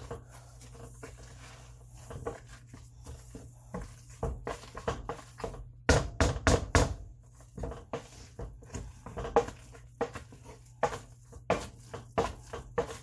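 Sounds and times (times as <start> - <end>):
potato masher knocking in metal pot: 3.8 - 13.0.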